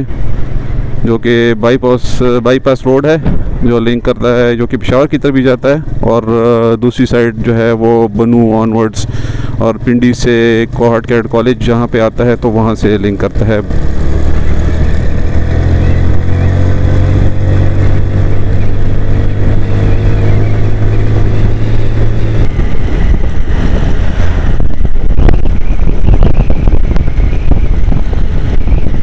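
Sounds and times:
wind rush over microphone: 0.0 - 29.0
motorcycle engine accelerating: 9.0 - 29.0.

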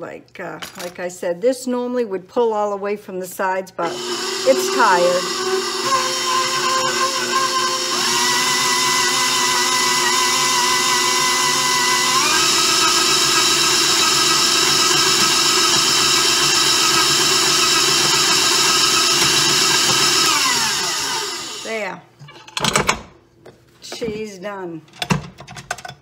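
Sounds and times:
stand mixer motor whine: 3.9 - 21.7.

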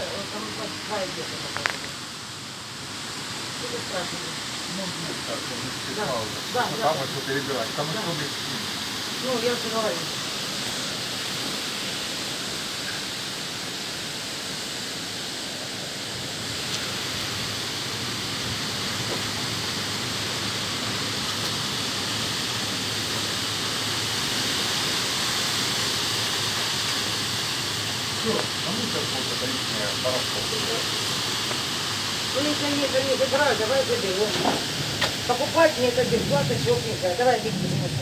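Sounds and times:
rain: 0.0 - 38.0
wind through trees: 30.5 - 38.0.

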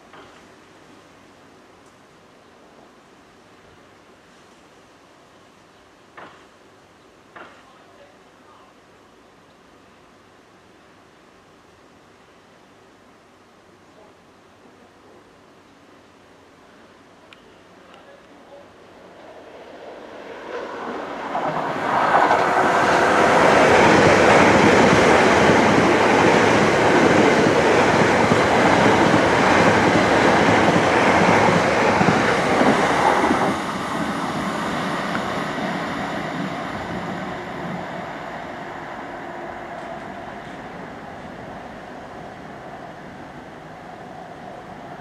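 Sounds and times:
electric train passing: 18.5 - 45.0.

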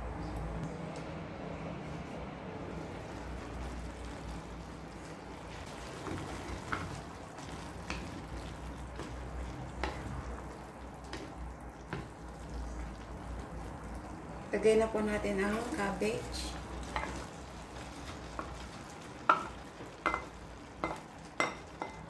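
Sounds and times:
broth sloshing and bubbling: 2.2 - 14.5
spatula knocking against pot: 19.3 - 19.5.

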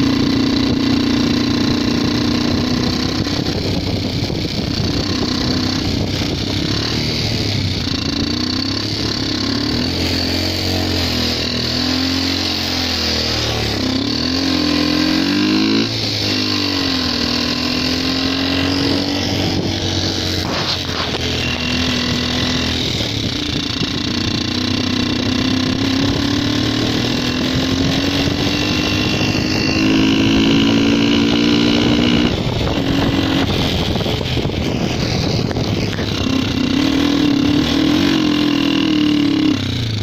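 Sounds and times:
motorcycle engine running: 0.0 - 40.0
wind noise: 0.0 - 40.0.

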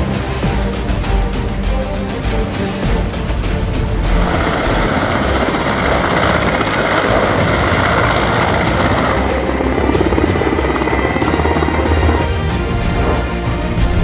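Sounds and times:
background music: 0.0 - 14.0
helicopter rotor beating: 3.8 - 14.0.

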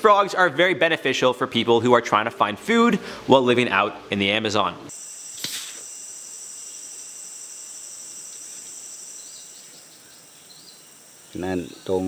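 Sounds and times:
insects droning: 4.9 - 12.0
blowpipe dart puff: 5.4 - 5.8.

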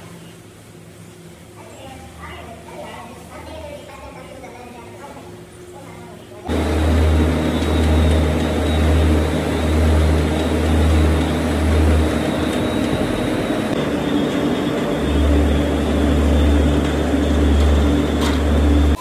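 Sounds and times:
loud machinery humming: 6.5 - 19.0.

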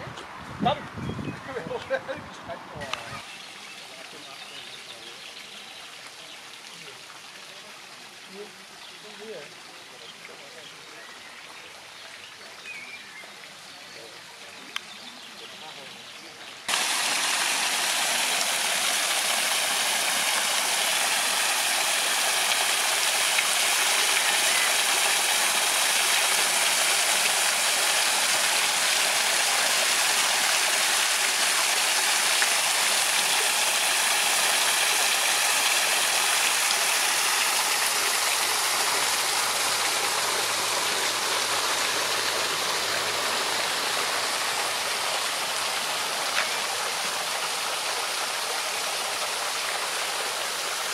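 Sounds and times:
stream splashing over stones: 16.7 - 50.9.

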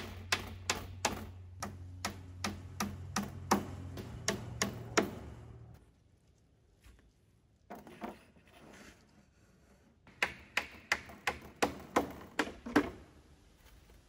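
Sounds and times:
hammer driving nail into wood: 0.0 - 5.4, 10.1 - 13.0.

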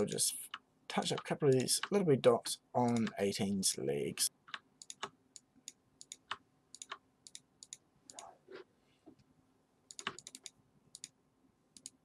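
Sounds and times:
computer mouse and keyboard clicks: 2.9 - 3.2, 4.5 - 8.6, 9.9 - 11.2, 11.8 - 12.0.

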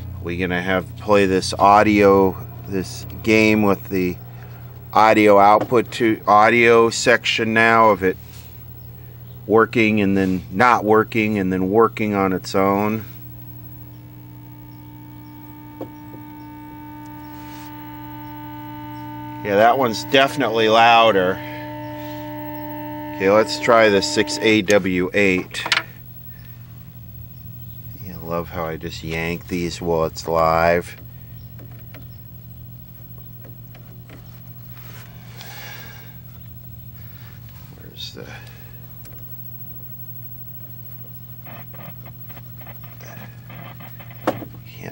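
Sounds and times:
steady electronic tones: 0.0 - 44.2
television audio hum: 0.3 - 31.1
soft hiss: 12.4 - 26.9
small clicks and scrapes: 40.6 - 44.5.

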